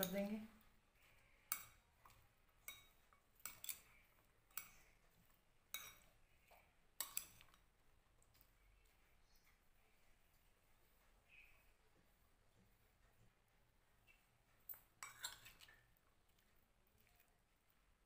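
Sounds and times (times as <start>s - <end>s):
metal spoon clinking glass bowl: 1.5s - 4.8s, 5.7s - 6.1s, 7.0s - 7.6s, 14.7s - 15.7s.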